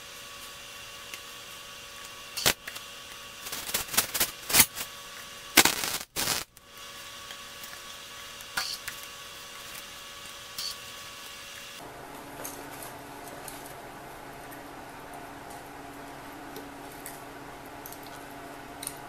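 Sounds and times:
welding arc crackling: 0.0s - 11.8s.

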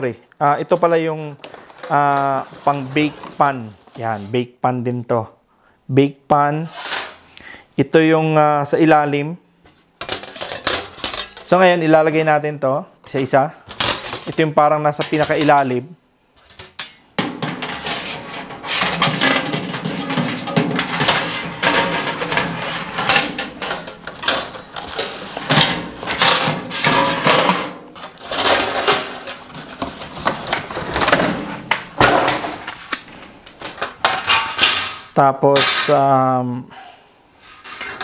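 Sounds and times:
metal baking pans clattering: 1.4s - 4.3s, 10.0s - 11.6s, 13.1s - 15.8s, 16.4s - 32.8s, 33.7s - 36.1s, 37.4s - 38.0s
wire rack sliding into oven: 17.5s - 29.4s.

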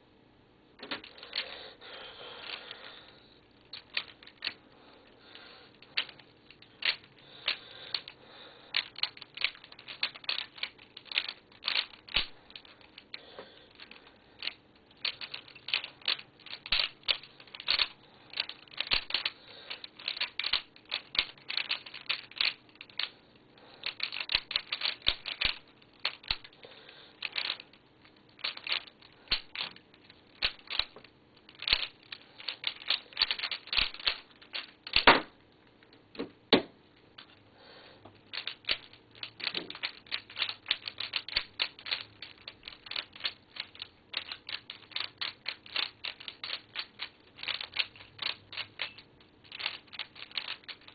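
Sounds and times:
puzzle cube clicking: 3.7s - 4.6s, 5.8s - 23.1s, 23.8s - 35.3s, 38.3s - 50.9s.

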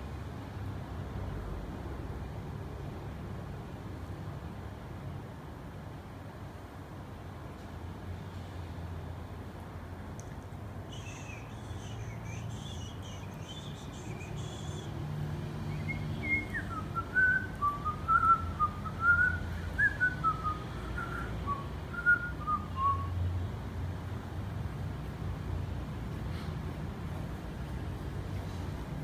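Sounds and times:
faint high chirps: 10.9s - 15.0s
person whistling a tune: 15.8s - 23.2s.

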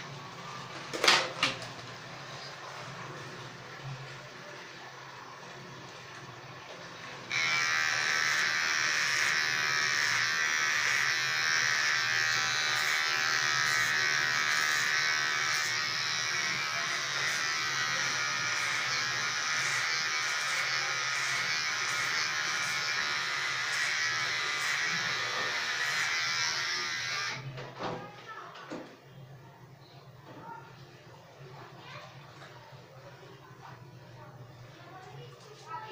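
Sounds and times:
electric hair trimmer buzzing: 7.3s - 27.4s.

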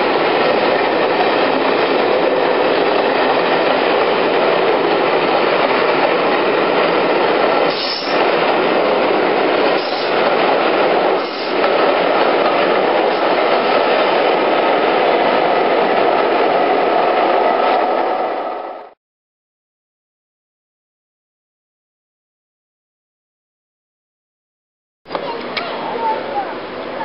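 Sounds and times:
train wheels rumbling on rail: 0.0s - 19.0s.

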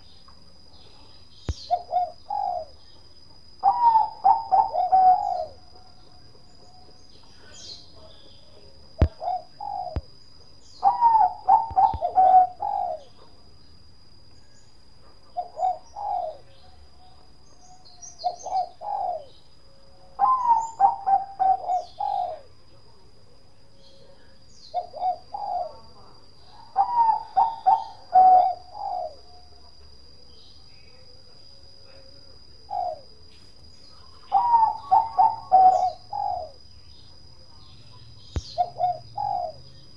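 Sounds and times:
faint high-pitched whine: 0.0s - 39.9s
dove cooing: 1.5s - 2.8s, 3.6s - 5.7s, 9.0s - 10.1s, 10.8s - 13.4s, 15.3s - 16.8s, 18.1s - 19.3s, 20.1s - 22.5s, 23.9s - 29.7s, 32.6s - 33.2s, 34.0s - 36.6s, 38.4s - 39.8s.

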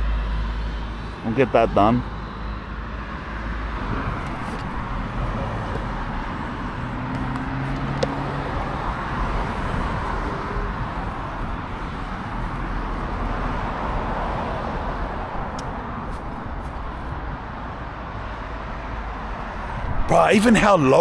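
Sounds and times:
road traffic noise: 0.0s - 21.0s
vehicle engine hum: 0.0s - 21.0s.

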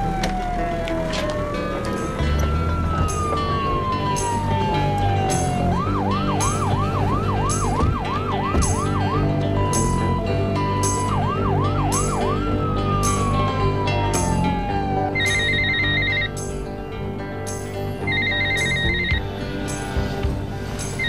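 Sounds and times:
police siren: 0.0s - 16.8s, 18.0s - 21.0s
steady drum beat: 6.4s - 10.1s.

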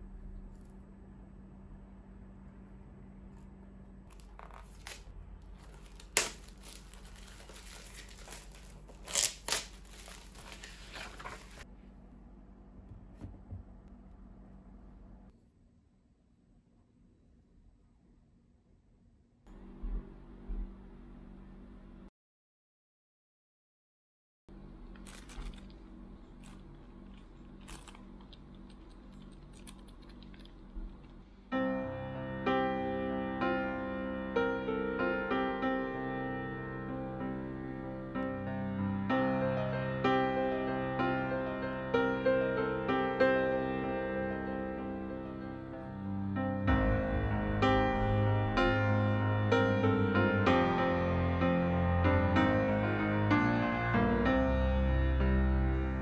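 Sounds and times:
low electrical hum: 0.0s - 22.1s, 24.5s - 32.5s
crinkling and rustling handling noise: 4.1s - 11.6s
sharp crackle: 4.2s - 11.6s.

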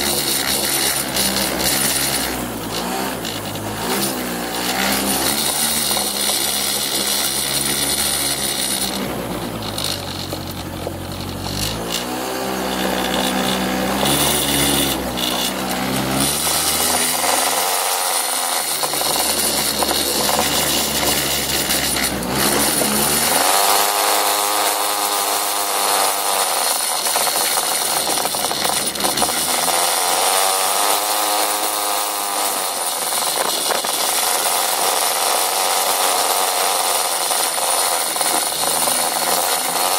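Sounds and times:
scooter engine revving: 0.0s - 39.9s.

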